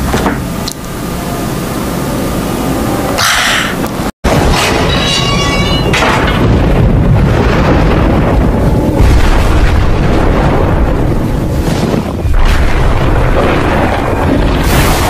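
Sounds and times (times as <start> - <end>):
low rumbling with deep booms: 4.3 - 15.0.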